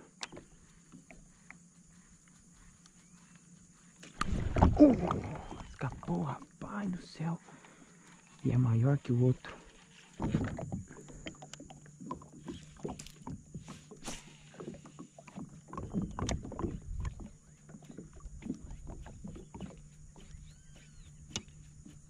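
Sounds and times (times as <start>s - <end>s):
water sounds: 4.0s - 22.0s.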